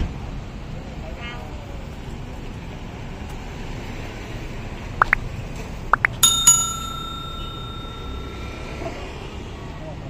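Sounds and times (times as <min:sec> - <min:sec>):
small bell ringing: 0:06.2 - 0:09.1.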